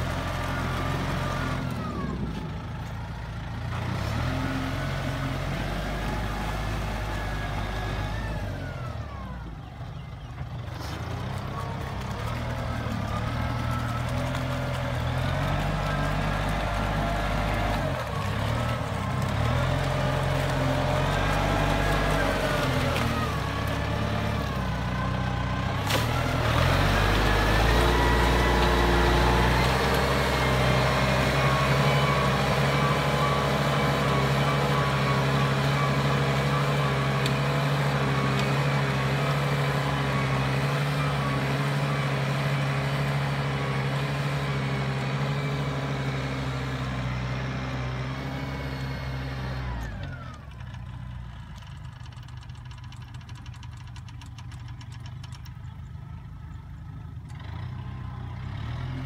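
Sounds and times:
tractor diesel engine under load: 0.0 - 59.0.

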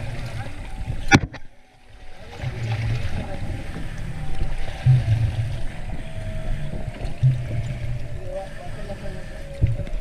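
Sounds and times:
water sloshing against boat: 0.0 - 10.0
wind buffeting microphone: 2.2 - 10.0.

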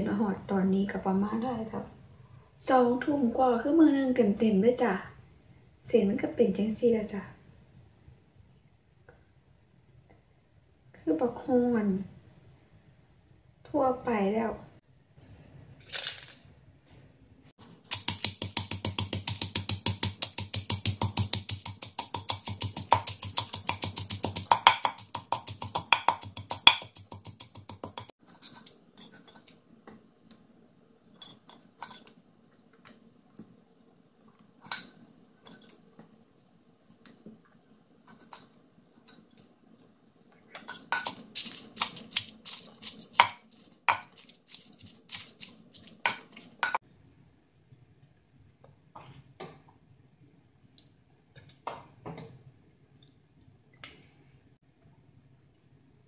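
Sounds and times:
pestle pounding in mortar: 17.7 - 28.1, 40.7 - 46.8.

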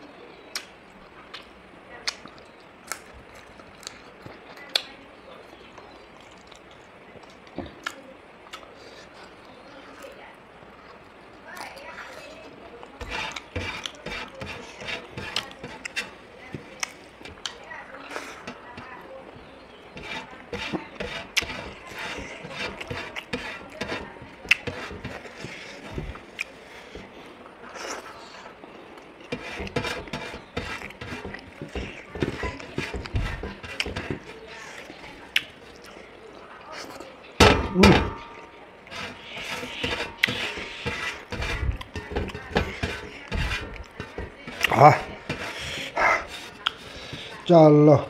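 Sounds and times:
chewing with clicks and smacks: 0.5 - 10.2, 15.3 - 18.4, 24.4 - 29.3, 34.5 - 37.2, 45.7 - 47.4
chewing and mouth sounds: 1.3 - 5.0, 5.7 - 14.0, 34.5 - 37.2, 44.6 - 47.4.

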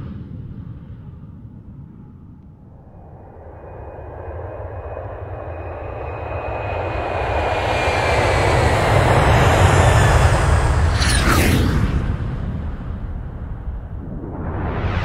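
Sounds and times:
high whine falling in pitch: 2.6 - 8.8
aircraft engine rushing: 2.7 - 15.0.

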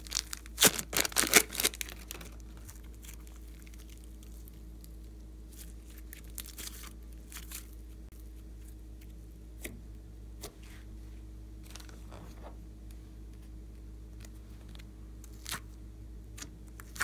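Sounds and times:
slime popping and crackling: 0.0 - 7.8
low hum: 0.0 - 17.0.

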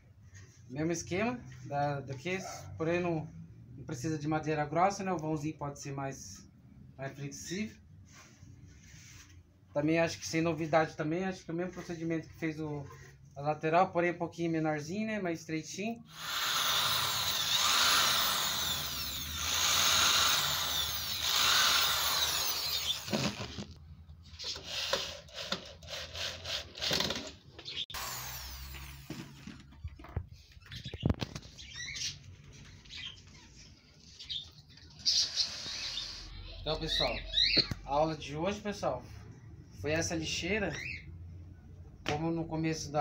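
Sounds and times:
cordless drill driving screws: 16.1 - 23.6, 27.9 - 29.4.

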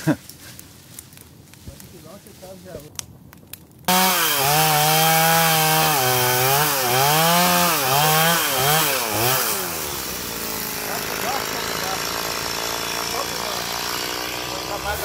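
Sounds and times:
chainsaw cutting log: 3.9 - 15.0.

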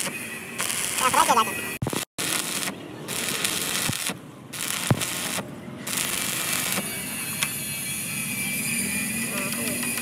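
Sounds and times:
welding arc crackling: 0.0 - 8.1.

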